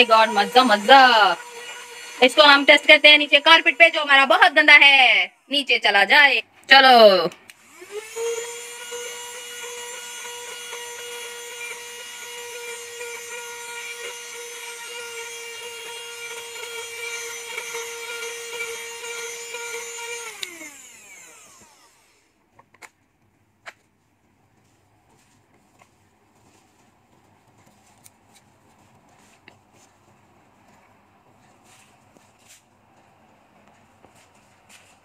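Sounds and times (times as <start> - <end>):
handheld vacuum cleaner whining: 0.0 - 5.6, 7.5 - 22.4.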